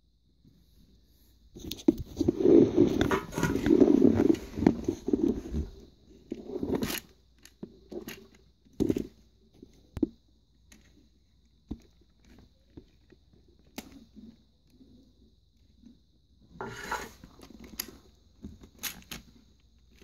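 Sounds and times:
toy scraping on wooden floor: 2.2s - 7.0s, 16.6s - 17.3s.

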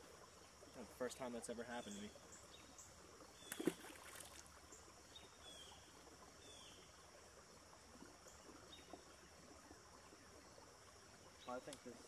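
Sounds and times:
faint outdoor ambience: 0.0s - 12.0s
fish splashing into pond: 3.4s - 4.7s.

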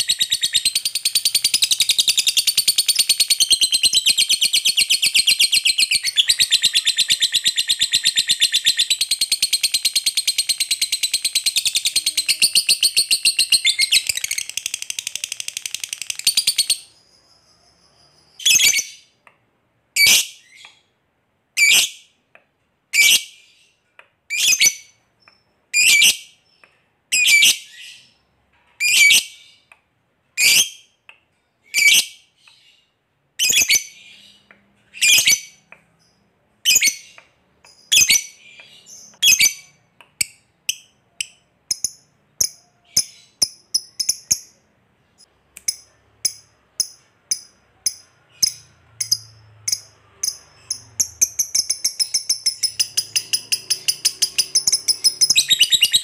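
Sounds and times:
bird shrill calls: 51.7s - 56.0s.

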